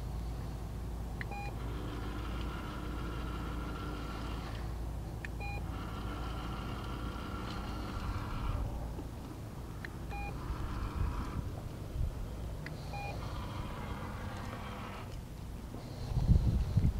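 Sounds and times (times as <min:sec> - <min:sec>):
low steady rumble: 0:00.0 - 0:16.9
dispenser motor whirring: 0:01.2 - 0:16.9
short electronic beeps: 0:01.3 - 0:01.6, 0:05.4 - 0:05.6, 0:10.1 - 0:10.4, 0:12.9 - 0:13.2.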